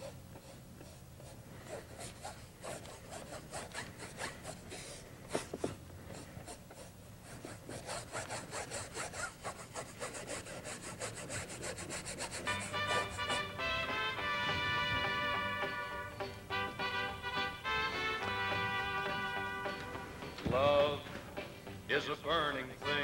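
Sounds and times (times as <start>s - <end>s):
paintbrush scrubbing on canvas: 0.0s - 13.6s.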